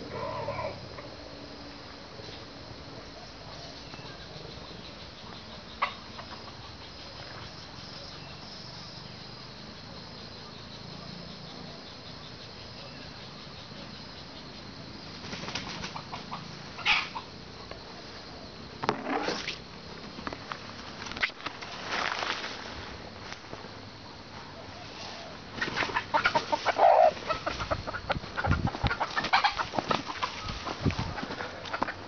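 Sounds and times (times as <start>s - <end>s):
wings flapping: 15.2s - 16.3s, 25.6s - 27.8s, 28.4s - 31.9s.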